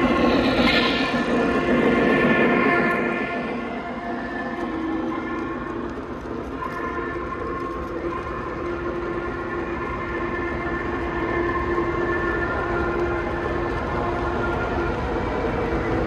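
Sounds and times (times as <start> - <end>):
model train running on track: 0.0 - 16.0.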